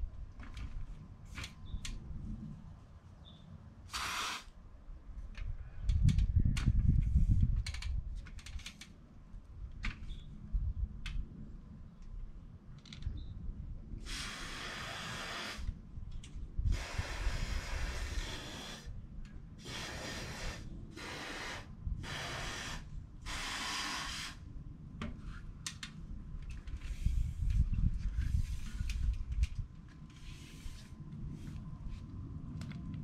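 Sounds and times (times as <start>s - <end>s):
aerosol spray hissing: 3.9s - 4.5s, 14.1s - 15.6s, 19.7s - 24.4s.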